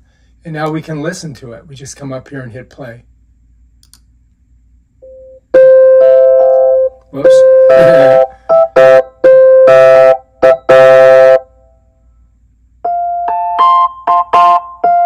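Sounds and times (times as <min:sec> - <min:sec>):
electric piano chords: 0:05.0 - 0:11.5, 0:12.8 - 0:15.0.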